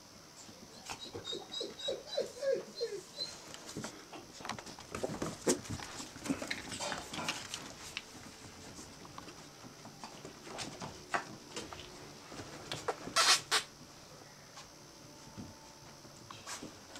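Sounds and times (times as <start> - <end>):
puppies yipping: 0.8 - 3.4
claws scrabbling on wood floor: 3.4 - 9.4.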